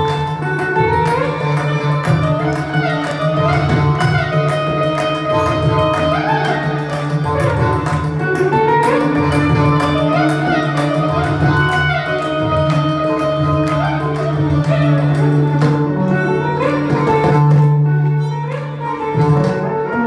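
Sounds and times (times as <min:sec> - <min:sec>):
electric mandolin melody: 0:00.0 - 0:20.0
hand drum strokes: 0:00.0 - 0:20.0
violin: 0:00.0 - 0:20.0.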